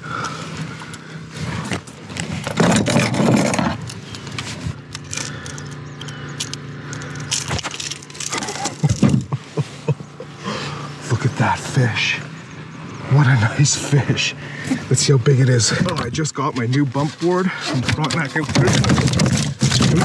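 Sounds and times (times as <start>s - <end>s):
steady low hum: 0.0s - 20.0s
metal hooks jangling: 5.0s - 9.1s.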